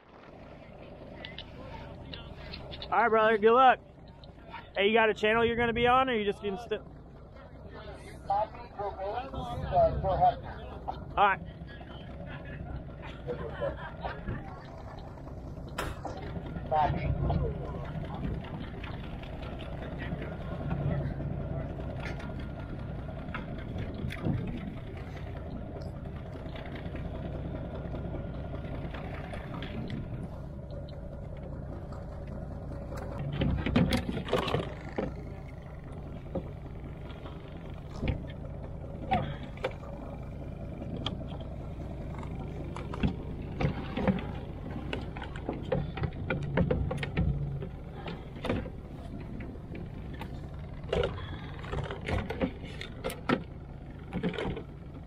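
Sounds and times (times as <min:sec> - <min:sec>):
boat engines idling: 0:00.0 - 0:55.0
gear knocking in a kayak: 0:21.8 - 0:55.0.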